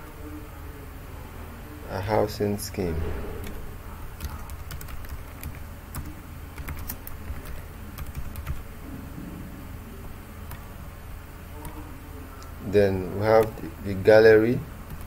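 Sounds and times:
computer keyboard typing: 0:03.4 - 0:08.7, 0:10.5 - 0:10.7, 0:13.4 - 0:13.6.

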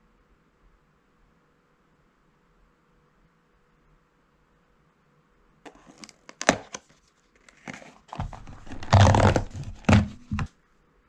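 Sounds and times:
cardboard box tearing open: 0:05.7 - 0:06.8, 0:07.5 - 0:10.5
foil packets crinkling: 0:05.7 - 0:06.8, 0:07.5 - 0:10.5.

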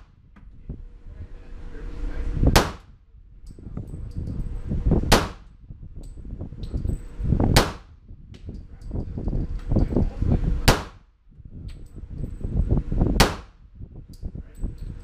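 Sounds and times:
pistol shots with echo: 0:02.5 - 0:02.8, 0:05.1 - 0:05.5, 0:07.6 - 0:07.9, 0:10.7 - 0:11.0, 0:13.2 - 0:13.6.

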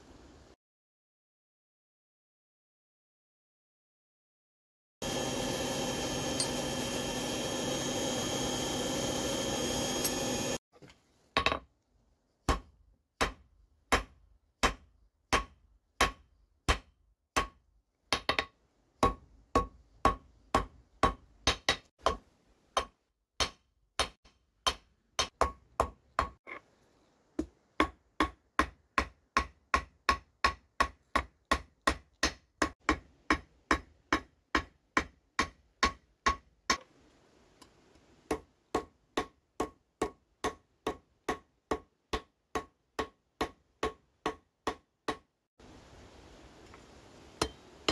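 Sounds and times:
hammer striking hot steel on anvil: 0:06.3 - 0:06.9, 0:12.5 - 0:22.2, 0:22.8 - 0:26.4, 0:27.8 - 0:36.8, 0:47.4 - 0:47.9.

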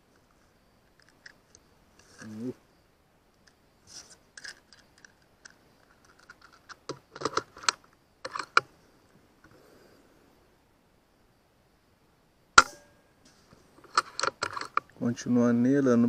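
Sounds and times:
air rifle metallic clicks: 0:04.4 - 0:08.7, 0:13.8 - 0:15.0.

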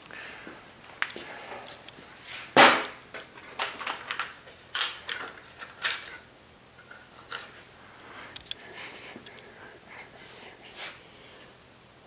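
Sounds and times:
steel parts clanking: 0:04.7 - 0:06.2.

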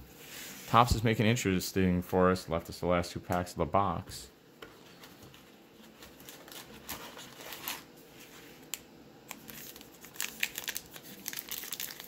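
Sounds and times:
card pack rustling and clicking: 0:05.0 - 0:07.9, 0:08.6 - 0:12.0
plastic wrapper crinkling: 0:08.7 - 0:12.0.

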